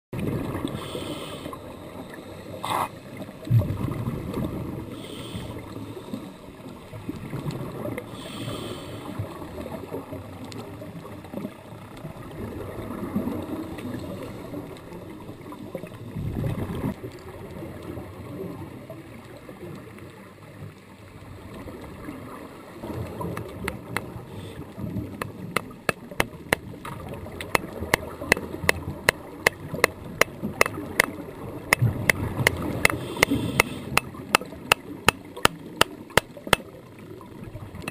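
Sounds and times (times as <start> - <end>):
exhaled bubbles underwater: 0.2 - 8.4, 9.0 - 37.9
low underwater rumble: 3.2 - 4.9.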